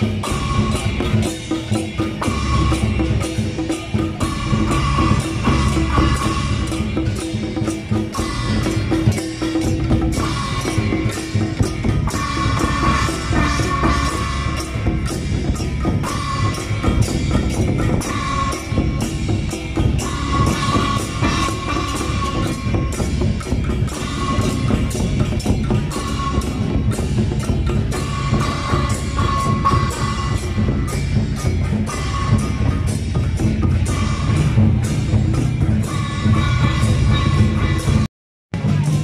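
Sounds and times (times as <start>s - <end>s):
cymbals clashing: 0.0s - 39.0s
drums beating fast: 0.0s - 39.0s.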